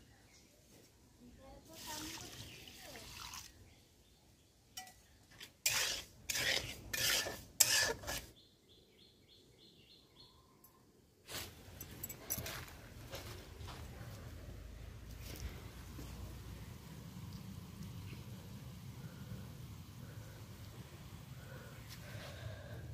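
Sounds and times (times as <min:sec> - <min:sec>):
metal spatula scraping steel pan: 0:04.8 - 0:08.3.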